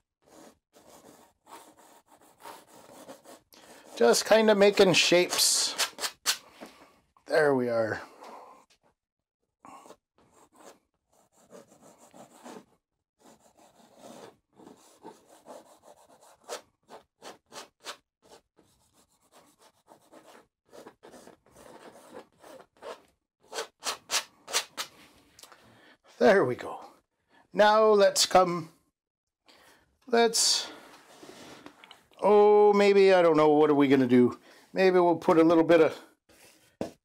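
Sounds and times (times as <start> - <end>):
palette knife scraping paint on canvas: 13.3 - 24.9.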